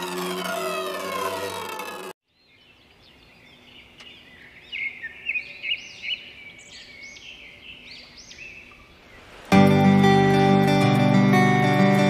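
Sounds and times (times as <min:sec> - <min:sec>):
birds chirping: 0:00.6 - 0:09.6.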